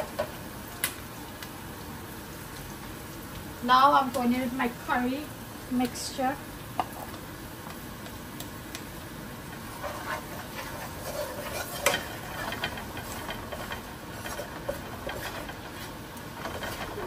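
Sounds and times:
food sizzling in hot oil: 0.0s - 17.0s
spoon scraping and clinking pot: 9.8s - 17.0s.

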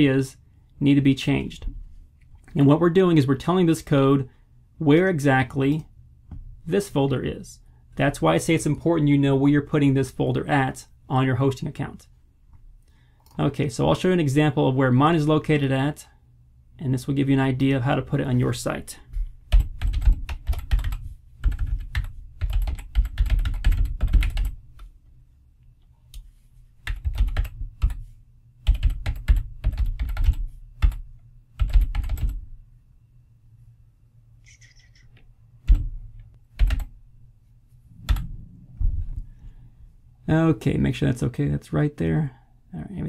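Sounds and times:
typing on a computer keyboard: 19.5s - 24.6s, 26.8s - 28.0s, 28.6s - 31.0s, 31.6s - 32.4s.

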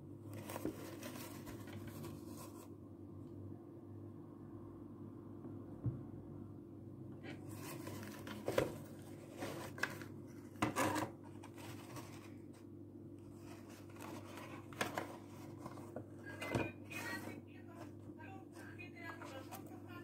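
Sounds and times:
steady low hum: 0.0s - 20.0s
cardboard scraping against plastic: 0.3s - 2.7s, 7.4s - 12.6s, 13.4s - 16.1s.

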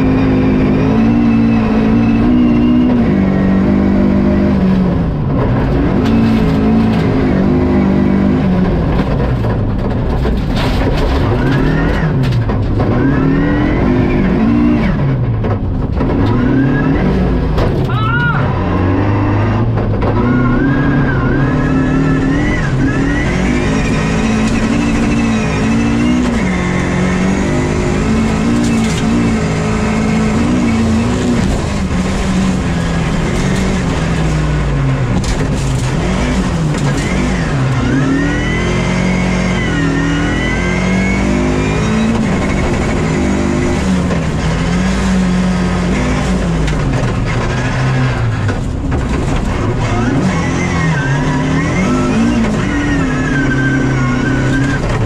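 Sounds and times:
rally car engine revving: 0.0s - 55.0s.

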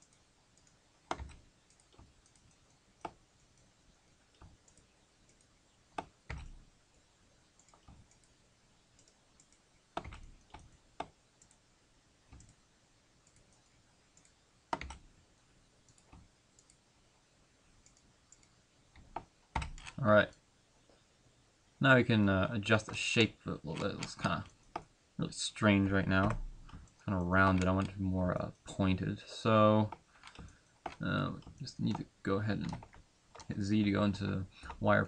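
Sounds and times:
computer mouse and keyboard clicks: 0.0s - 3.7s, 4.3s - 6.6s, 7.6s - 8.4s, 9.0s - 11.6s, 12.3s - 12.6s, 13.2s - 15.1s, 17.8s - 20.0s, 26.1s - 28.0s, 29.9s - 33.6s.

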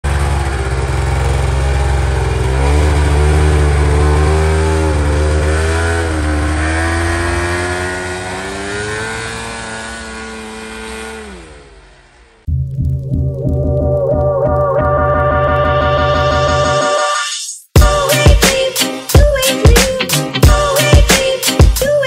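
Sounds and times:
snowmobile engine revving: 0.1s - 12.5s.

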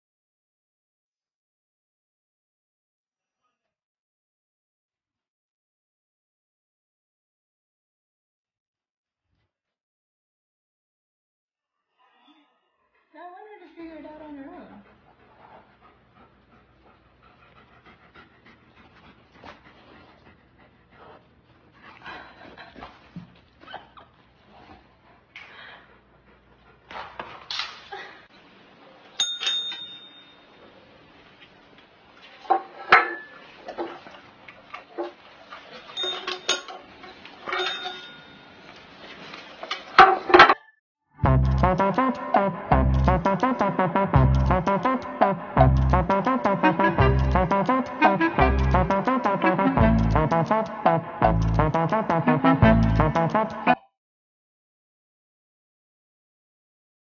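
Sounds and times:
dog panting: 13.8s - 27.4s
desk service bell dinging: 29.2s - 30.4s.

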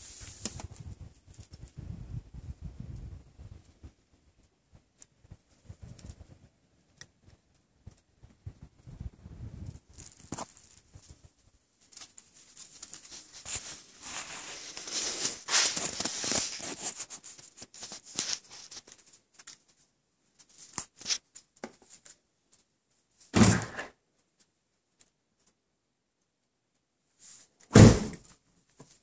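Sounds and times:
footsteps crunching through snow: 12.3s - 18.8s.

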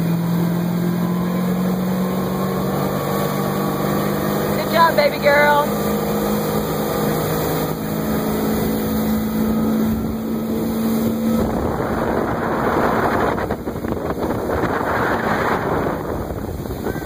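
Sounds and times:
motorboat engine hum: 0.0s - 17.0s
water rushing past hull: 0.0s - 17.0s
wind on microphone: 6.0s - 17.0s.

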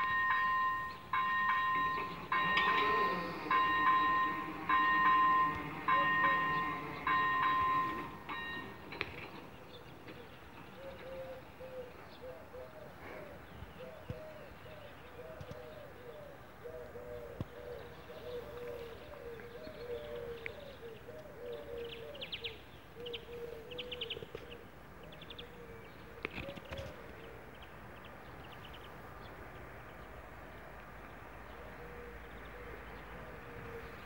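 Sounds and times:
pigeons cooing: 1.3s - 8.6s, 10.7s - 24.6s, 31.5s - 34.0s.

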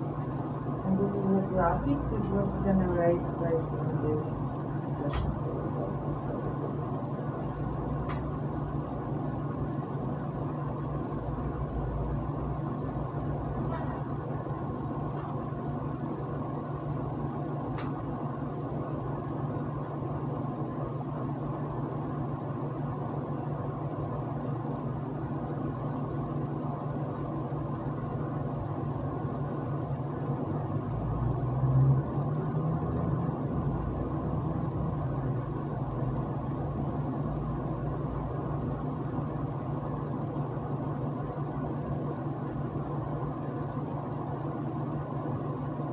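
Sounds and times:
low mechanical hum: 0.0s - 45.9s.

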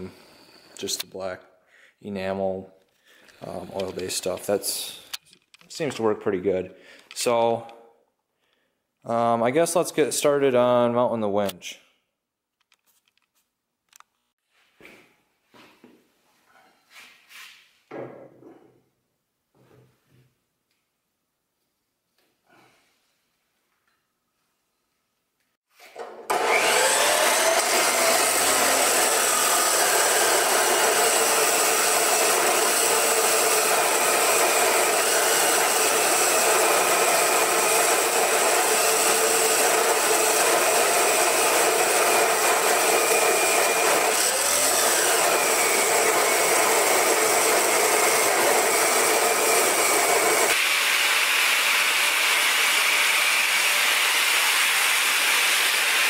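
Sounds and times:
chop saw cutting steel: 25.8s - 56.0s
grinder on steel plate: 26.3s - 56.0s.

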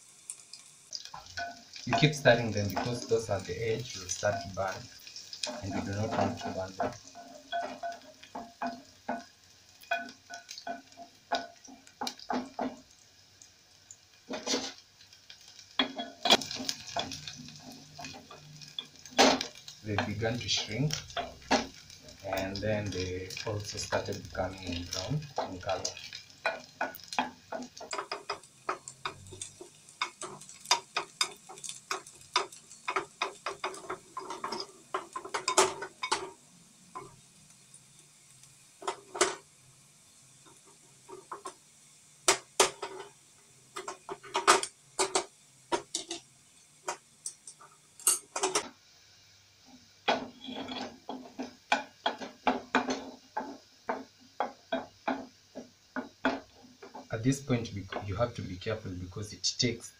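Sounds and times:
onions frying: 0.0s - 59.9s
wooden spoon scraping metal pot: 1.2s - 9.3s, 14.3s - 14.8s, 50.1s - 54.8s.

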